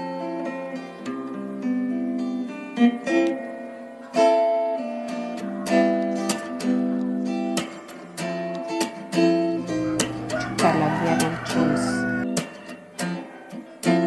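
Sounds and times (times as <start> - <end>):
acoustic guitar picking: 9.2 - 12.4.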